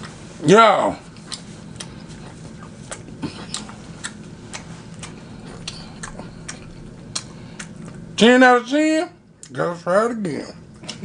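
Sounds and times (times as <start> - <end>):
faint low hum: 0.0 - 11.0
person chewing food: 1.1 - 8.2.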